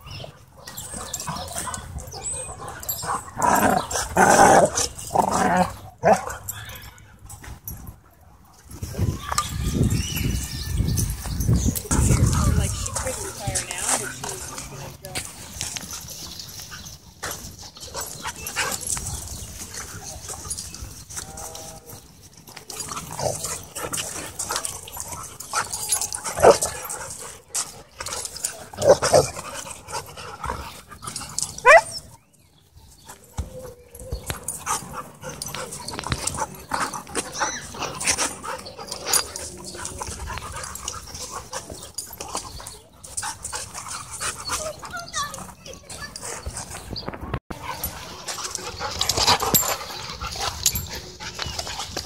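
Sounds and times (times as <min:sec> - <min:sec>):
dogs panting: 0:00.0 - 0:09.0, 0:11.1 - 0:31.8, 0:32.8 - 0:52.0.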